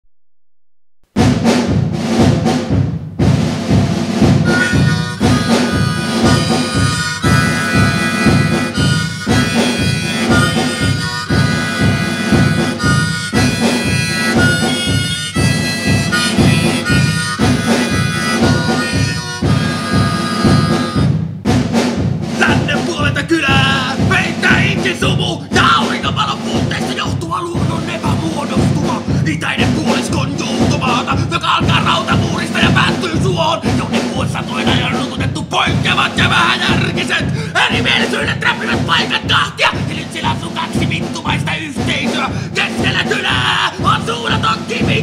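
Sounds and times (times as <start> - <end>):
rhythmic folk accompaniment: 1.2 - 45.0
harmonica playing held notes: 4.5 - 21.2.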